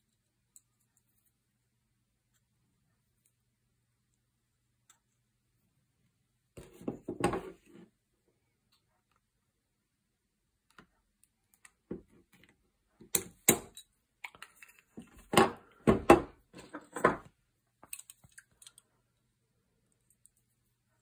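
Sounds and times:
metal parts clicking and clinking: 17.8 - 18.8.

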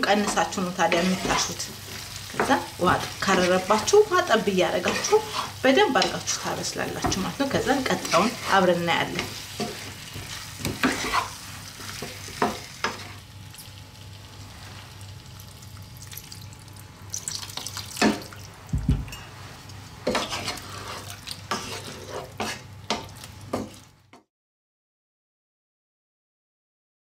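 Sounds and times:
food sizzling in oil: 0.0 - 24.1
wooden spatula scraping a pan: 0.1 - 13.2, 19.1 - 23.9
water poured into pan: 15.3 - 18.8.

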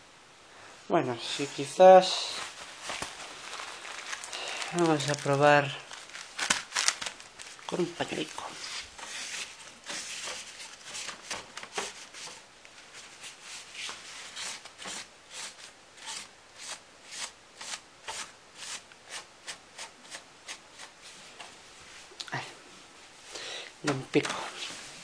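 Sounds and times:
paper tissue swishing on case: 1.2 - 15.7.

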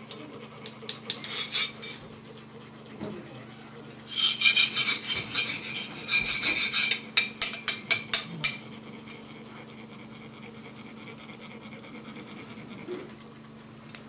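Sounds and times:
metal rod grating on metal cone: 1.1 - 2.1, 4.1 - 7.8.

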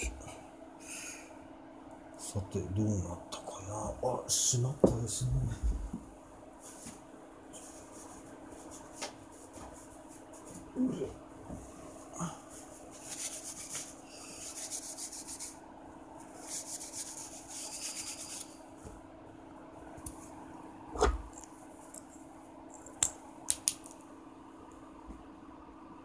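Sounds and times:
scratchy rubbing of crystal: 12.6 - 15.6, 16.3 - 18.6.

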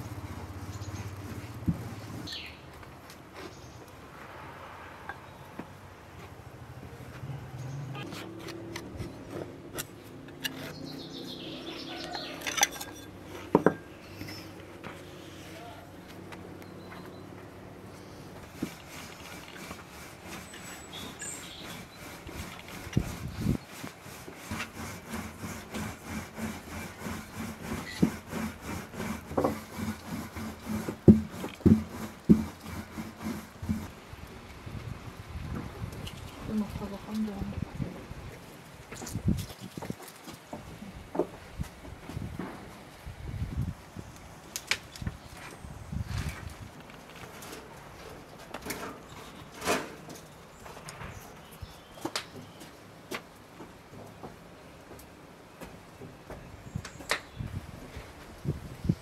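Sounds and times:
dough rubbing on wooden board: 0.1 - 2.3, 18.4 - 33.9
birds chirping: 2.2 - 2.7, 10.4 - 13.0, 13.8 - 18.3, 20.4 - 22.2
knocks on wooden board: 31.0 - 32.6.

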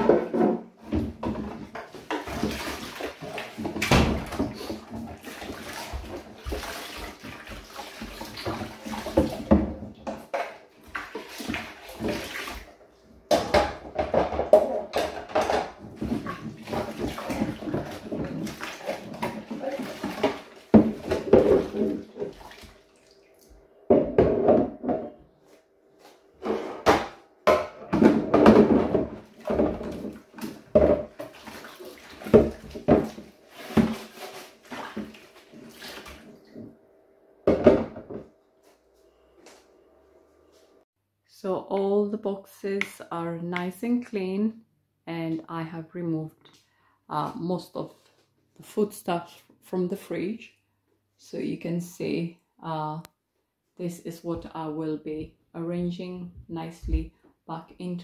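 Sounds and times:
water splashing and sloshing: 0.0 - 25.2, 26.0 - 36.8
plastic containers knocking: 13.3 - 22.1, 26.8 - 31.3.

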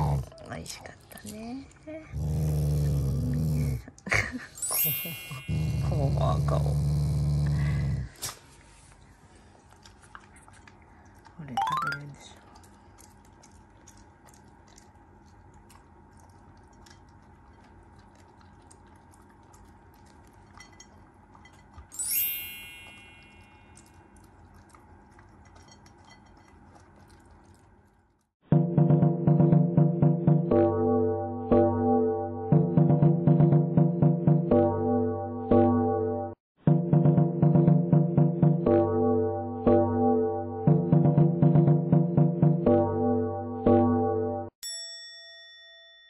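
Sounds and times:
bright chime: 4.6 - 6.1, 21.9 - 23.8, 44.6 - 46.0
dog crunching kibble in metal bowl: 22.9 - 27.8.

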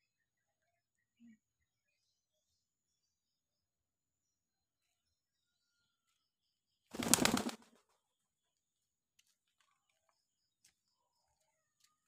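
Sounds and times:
pigeon wings clattering: 7.0 - 7.7.

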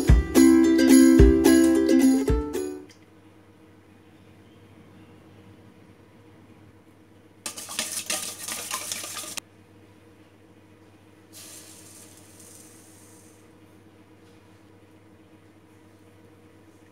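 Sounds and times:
sugar pouring with soft hiss: 7.5 - 9.4, 11.3 - 13.6
whisk beating eggs in metal bowl: 7.5 - 9.4.

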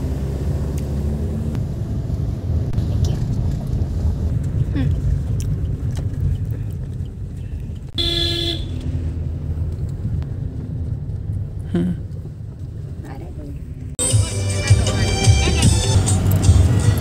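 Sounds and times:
car cabin road rumble: 0.0 - 17.0
car horn toot: 8.0 - 8.9.

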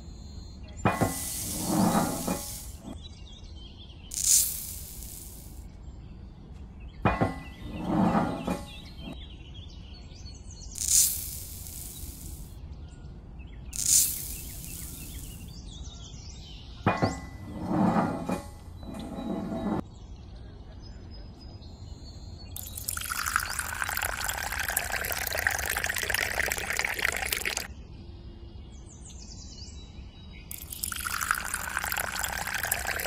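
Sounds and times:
short hissing bursts: 1.1 - 3.0, 4.1 - 5.6, 10.8 - 12.5, 13.8 - 15.5.

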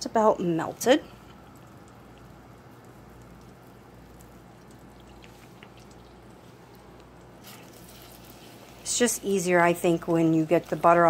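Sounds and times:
low steady hum: 0.0 - 11.0
soft pops and crackles: 0.8 - 8.8
butter sizzling in a saucepan: 7.4 - 11.0.

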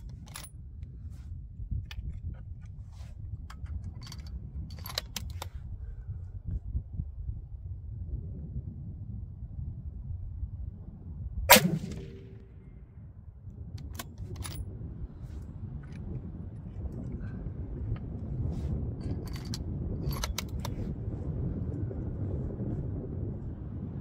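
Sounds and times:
wind rumble on microphone: 0.0 - 24.0
rifle bolt clicks: 11.5 - 12.4, 19.3 - 20.8
rifle shot with echo: 11.5 - 12.7.

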